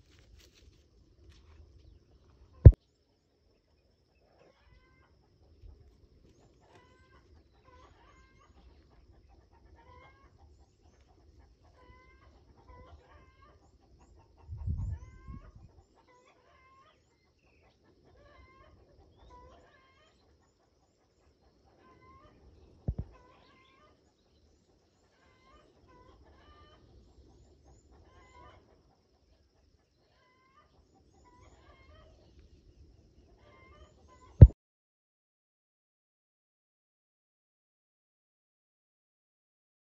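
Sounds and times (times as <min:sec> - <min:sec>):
distant chickens clucking: 0:06.3 - 0:24.1, 0:24.8 - 0:26.9, 0:27.6 - 0:32.3.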